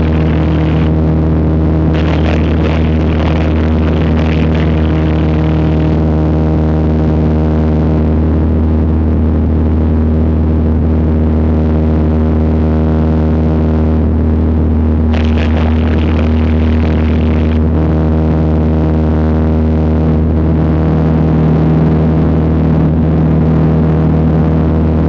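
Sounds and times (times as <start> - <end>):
airplane engine droning: 0.0 - 25.0.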